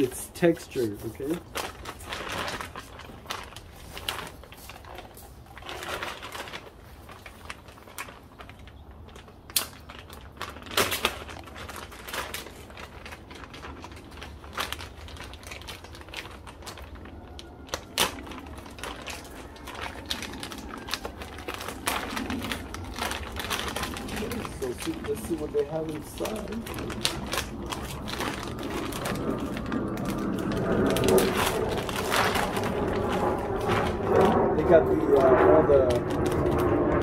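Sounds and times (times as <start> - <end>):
plastic bag crinkling: 0.0 - 37.0
sharp clicks and snaps: 8.5 - 10.2.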